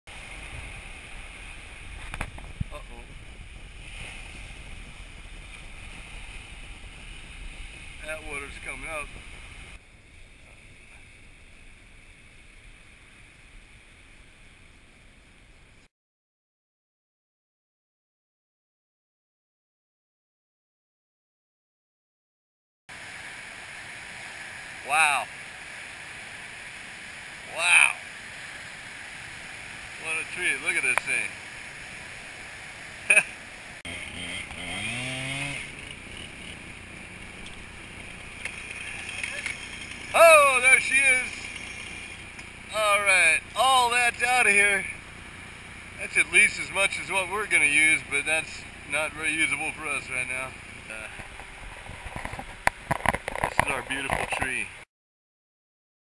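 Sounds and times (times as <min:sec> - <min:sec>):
wind: 0:00.1 - 0:15.9, 0:22.9 - 0:54.9
ocean surf breaking: 0:23.0 - 0:33.8, 0:35.6 - 0:50.4
chainsaw cutting log: 0:33.9 - 0:40.1.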